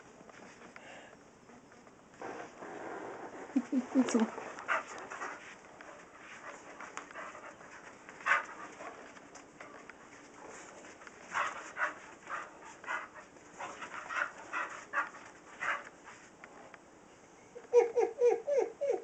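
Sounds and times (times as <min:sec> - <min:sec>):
dog huffing: 0:02.2 - 0:08.9, 0:11.3 - 0:15.9.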